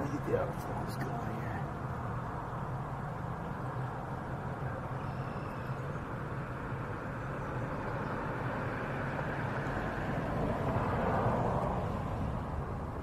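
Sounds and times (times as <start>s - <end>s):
road traffic rumble: 0.0s - 13.0s
vehicle passing close by: 6.1s - 13.0s.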